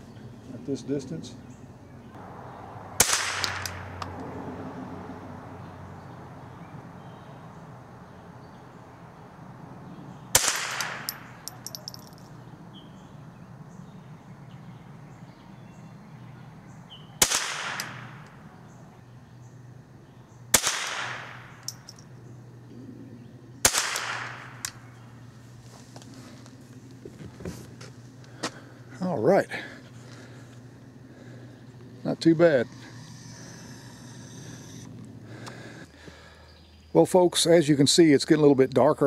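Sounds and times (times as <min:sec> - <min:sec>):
rifle shots with echo: 0:03.0 - 0:03.9, 0:10.3 - 0:11.5, 0:17.2 - 0:18.2, 0:20.5 - 0:21.7, 0:23.6 - 0:24.8.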